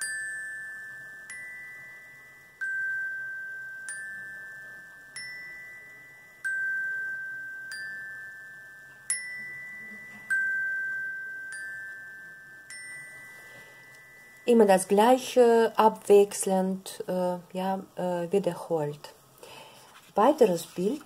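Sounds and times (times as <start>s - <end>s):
glockenspiel notes: 0.0s - 14.9s.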